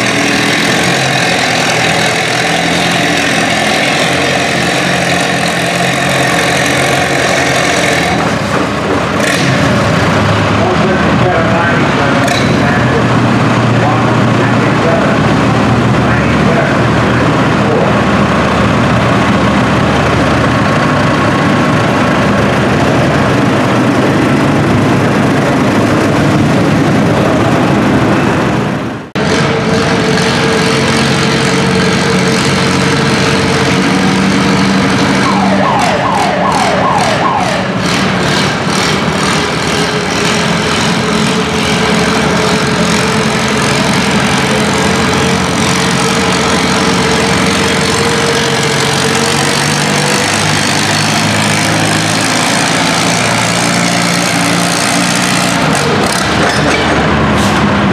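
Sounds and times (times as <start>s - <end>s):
tractor engines running loud: 0.0s - 57.9s.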